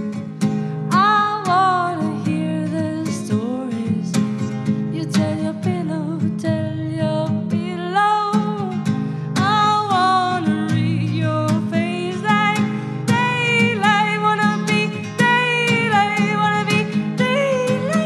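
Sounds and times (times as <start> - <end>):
strummed guitar: 0.0 - 18.0
person singing: 0.9 - 4.2, 4.9 - 18.0.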